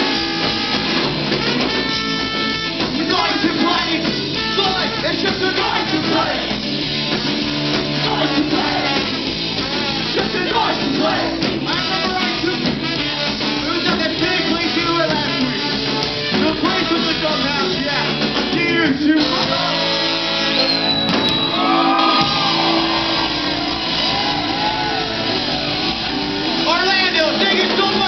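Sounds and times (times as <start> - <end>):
trombone: 0.0 - 21.0
saxophone: 0.0 - 26.6
bass guitar: 0.0 - 28.0
drums: 0.0 - 28.0
electric guitar: 0.0 - 28.0
man singing: 2.9 - 6.5, 7.9 - 20.0.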